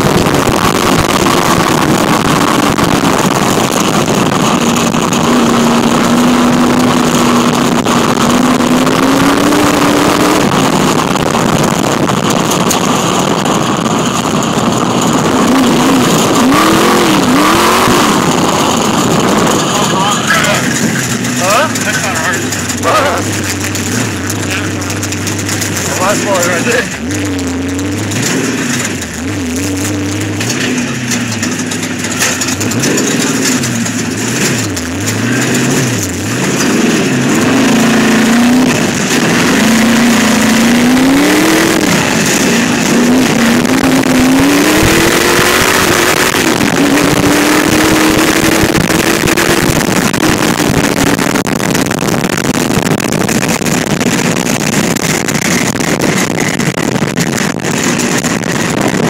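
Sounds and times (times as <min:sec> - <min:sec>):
buggy engine revving: 0:00.0 - 0:59.0
wind rush: 0:36.8 - 0:59.0.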